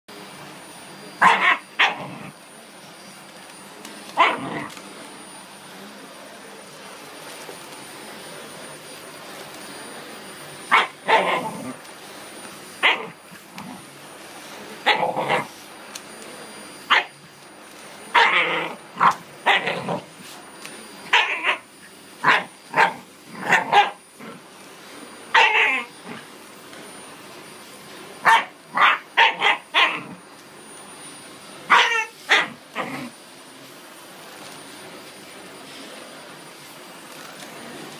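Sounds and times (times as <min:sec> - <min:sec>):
dog barking: 0:01.2 - 0:02.1, 0:04.2 - 0:04.7, 0:10.7 - 0:11.5, 0:16.9 - 0:17.1, 0:18.1 - 0:18.4, 0:21.1 - 0:21.6, 0:22.2 - 0:24.0, 0:25.3 - 0:25.9, 0:28.2 - 0:30.1, 0:31.7 - 0:32.6.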